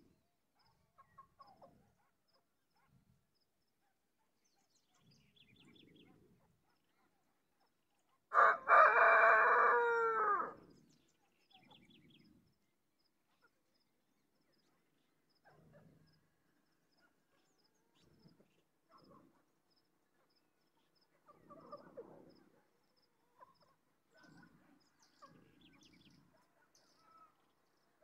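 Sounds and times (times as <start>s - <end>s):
rooster crowing: 8.3s - 10.6s.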